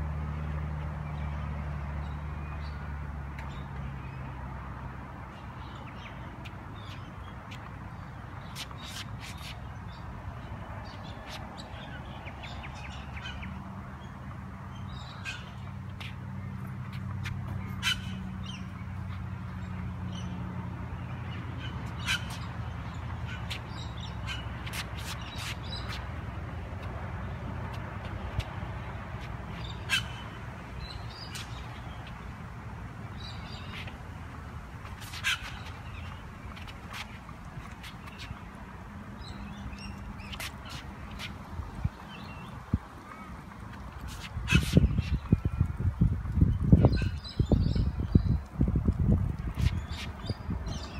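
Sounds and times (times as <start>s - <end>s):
birds chirping: 27.6s - 48.6s, 49.3s - 50.9s.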